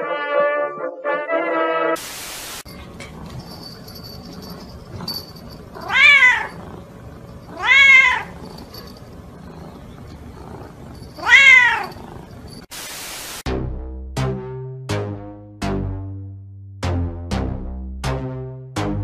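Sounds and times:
cat meowing: 5.8 - 6.6, 7.5 - 8.6, 11.1 - 12.0.

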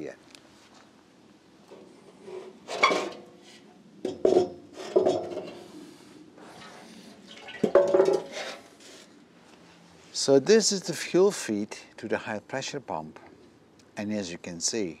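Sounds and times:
metal tank clanking against frame: 2.6 - 3.3, 4.0 - 5.6, 7.3 - 8.6.

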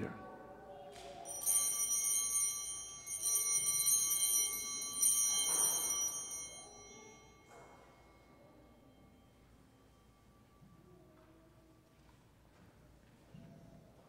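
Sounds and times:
altar bells ringing: 1.2 - 11.8.

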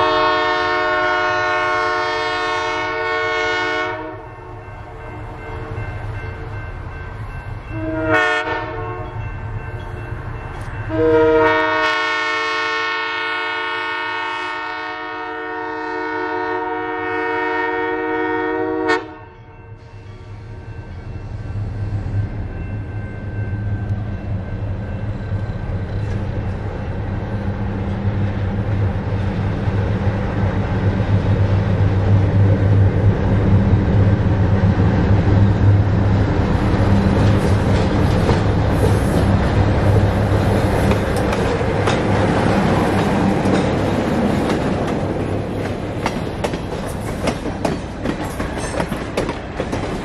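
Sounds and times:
diesel locomotive engine drone: 0.0 - 50.0
train wheels clacking on rails: 36.4 - 50.0.

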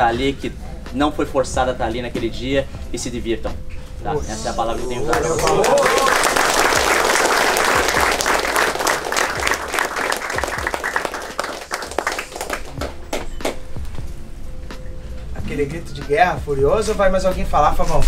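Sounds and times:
people clapping: 4.9 - 13.7.

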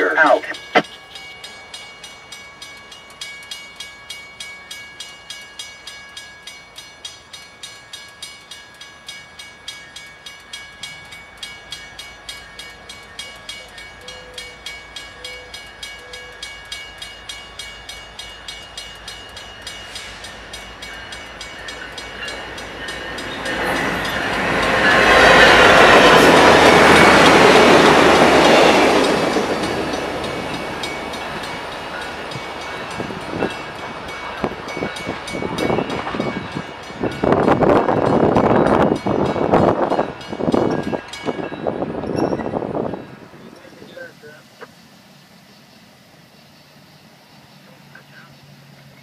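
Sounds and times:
crossing bell ringing: 0.0 - 44.4
passenger train passing: 0.0 - 49.0.

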